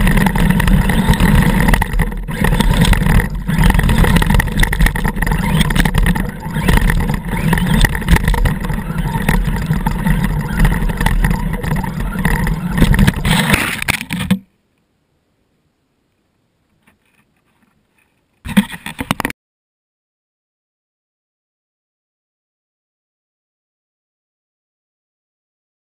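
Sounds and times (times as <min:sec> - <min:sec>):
toy truck electric motor: 0:00.0 - 0:14.2.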